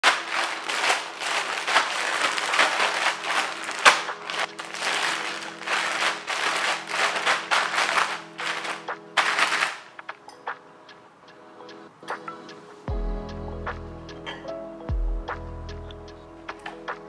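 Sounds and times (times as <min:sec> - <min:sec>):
plastic bag crinkling and rustling: 0:00.0 - 0:10.0.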